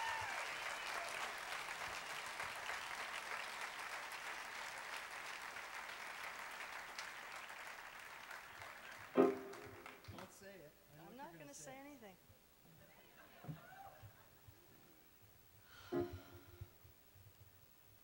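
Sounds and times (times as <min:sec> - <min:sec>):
audience applauding: 0:00.0 - 0:10.4.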